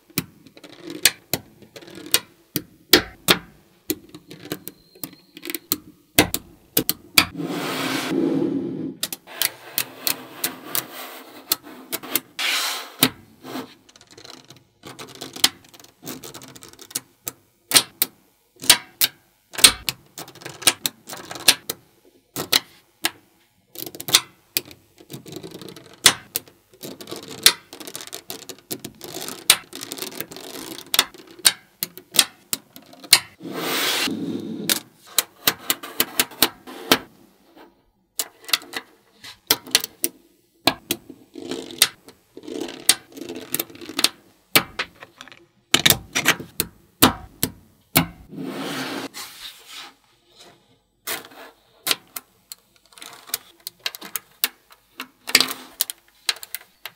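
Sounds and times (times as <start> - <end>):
magnetic balls rattling: 44.7 - 46.2.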